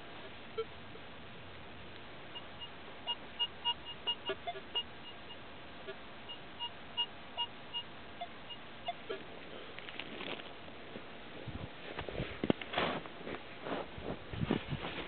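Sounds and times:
metal detector beeps: 0:02.3 - 0:09.2.

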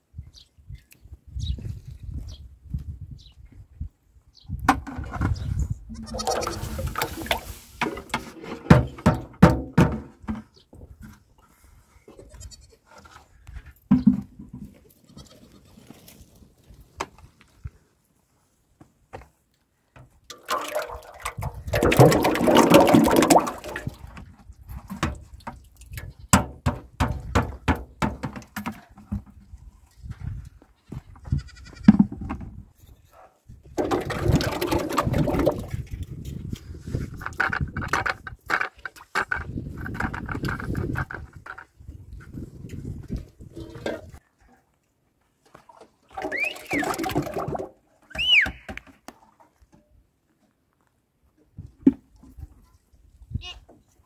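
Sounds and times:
bucket knocks and clicks: 0:04.6 - 0:05.5, 0:06.1 - 0:10.6, 0:13.9 - 0:14.8, 0:20.0 - 0:29.4, 0:33.7 - 0:36.1, 0:37.1 - 0:41.7, 0:46.1 - 0:49.2
liquid pouring into metal tub: 0:20.3 - 0:24.0, 0:33.8 - 0:35.8, 0:46.1 - 0:47.7.

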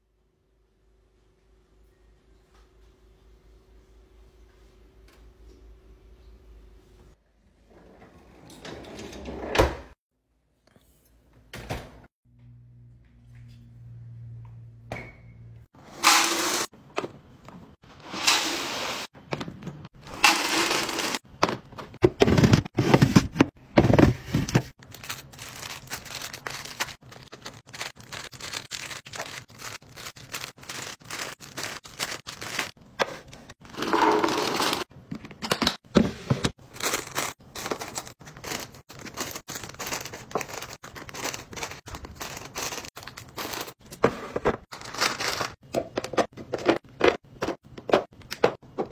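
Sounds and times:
plastic wrappers crinkling: 0:24.8 - 0:32.8, 0:36.6 - 0:43.8, 0:44.7 - 0:45.6.

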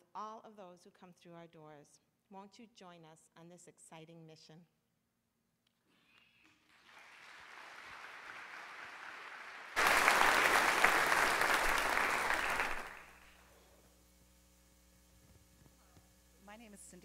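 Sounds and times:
congregation applauding: 0:06.7 - 0:13.4.

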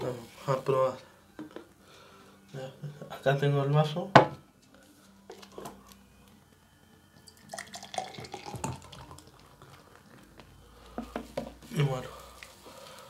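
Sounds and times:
liquid sound: 0:07.3 - 0:10.0.

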